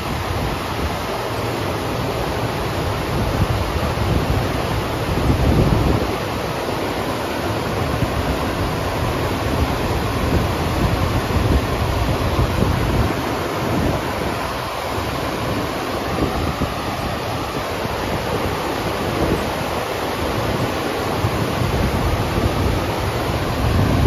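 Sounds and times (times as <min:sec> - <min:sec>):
water rushing up a ramp: 0:00.0 - 0:24.0
wind buffeting microphone: 0:02.0 - 0:24.0.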